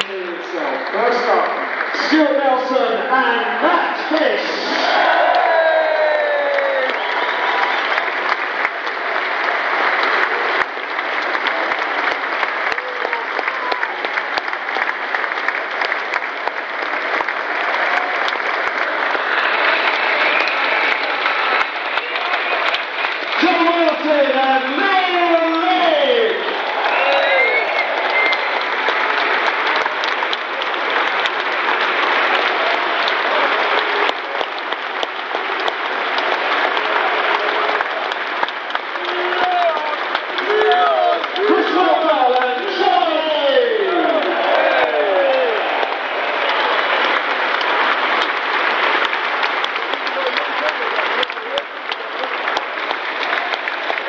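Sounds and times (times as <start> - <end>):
crowd clapping: 0.0 - 54.0
crowd voices: 0.0 - 54.0
sharp close claps: 27.8 - 42.6, 45.3 - 54.0.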